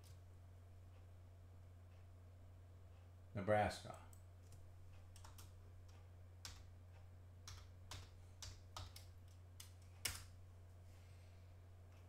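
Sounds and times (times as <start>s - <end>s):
low steady hum: 0.0s - 12.0s
keyboard typing: 4.1s - 6.7s, 7.4s - 10.4s.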